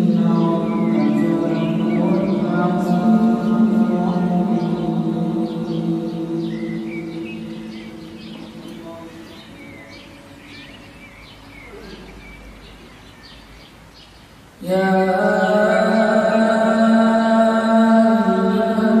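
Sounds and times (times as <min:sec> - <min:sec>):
loud chanting voice: 0:00.0 - 0:12.2, 0:14.6 - 0:19.0
ambient music drone: 0:00.0 - 0:12.3
small birds chirping: 0:00.0 - 0:19.0.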